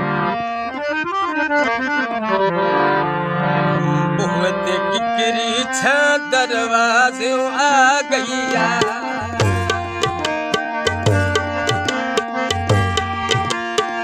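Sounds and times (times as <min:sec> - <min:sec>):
harmonium: 0:00.0 - 0:14.0
man singing: 0:03.8 - 0:10.3
tabla strokes: 0:08.5 - 0:14.0.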